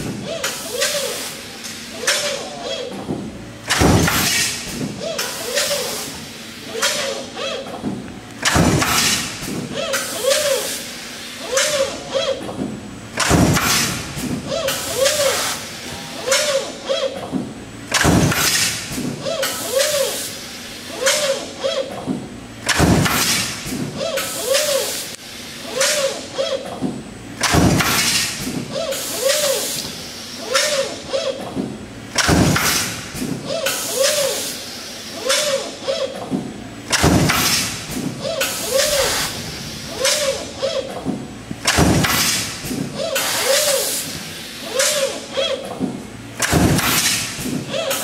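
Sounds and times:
stamping press thuds: 7.8s - 9.7s, 12.6s - 14.5s, 22.1s - 24.0s, 26.8s - 28.7s, 31.5s - 33.4s, 36.3s - 38.2s, 40.9s - 43.0s, 45.7s - 47.7s.

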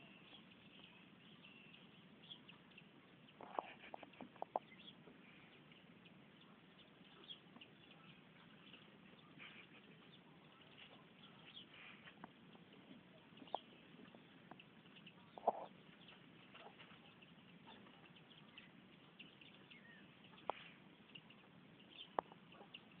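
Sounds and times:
hens clucking: 3.4s - 4.9s, 13.4s - 18.1s.

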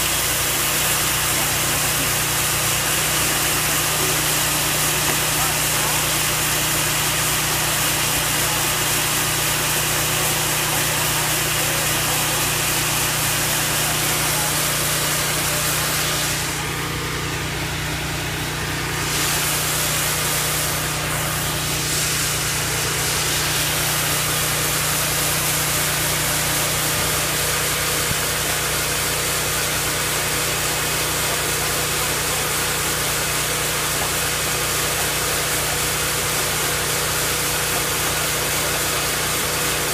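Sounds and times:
sawmill engine running: 0.0s - 39.9s.

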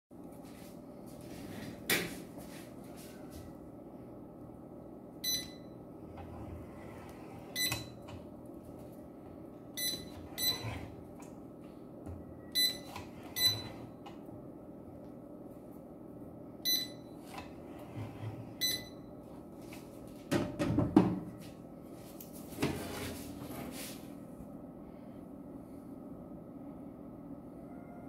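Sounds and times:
steady low hum: 0.2s - 28.0s.

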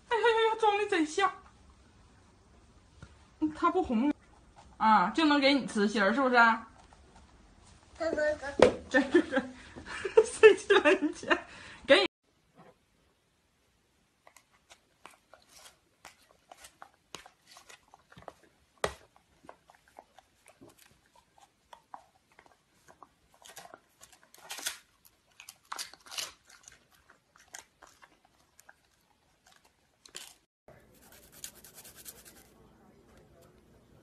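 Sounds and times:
dog chewing crunchy crispbread: 14.3s - 30.4s.

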